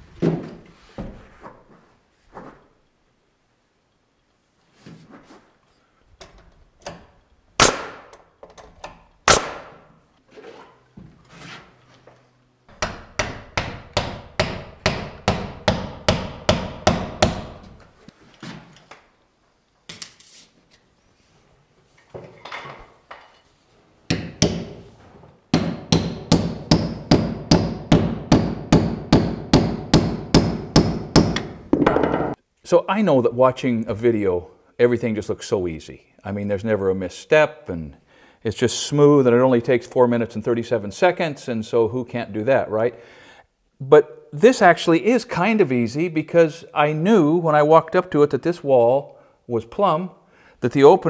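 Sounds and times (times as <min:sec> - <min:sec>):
hammer striking wood: 0:12.7 - 0:17.8, 0:24.1 - 0:24.8, 0:25.5 - 0:32.4.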